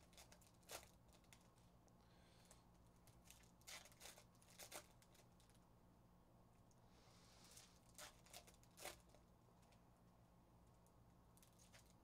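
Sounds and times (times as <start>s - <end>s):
foil pack crinkling and tearing: 0.0s - 1.5s, 2.4s - 5.6s, 7.4s - 9.2s
low room hum: 0.0s - 12.0s.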